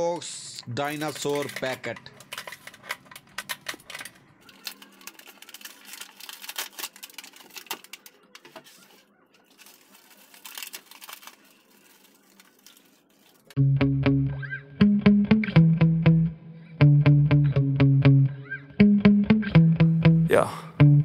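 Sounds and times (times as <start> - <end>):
plastic packet crinkling: 0.8 - 13.6.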